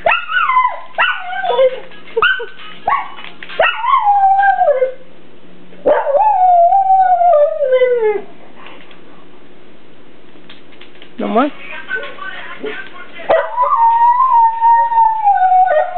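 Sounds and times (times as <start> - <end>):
dog howling: 3.6 - 5.0, 5.9 - 8.3, 13.3 - 15.9.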